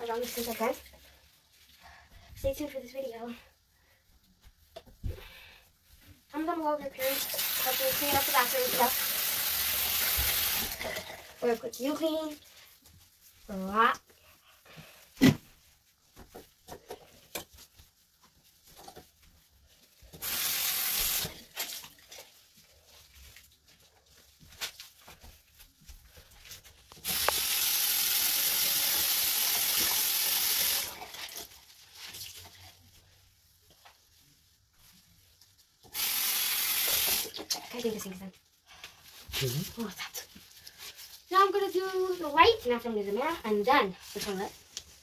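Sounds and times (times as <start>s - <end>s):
sink faucet running: 7.0s - 11.5s, 20.2s - 21.8s, 27.0s - 31.4s, 35.8s - 38.0s.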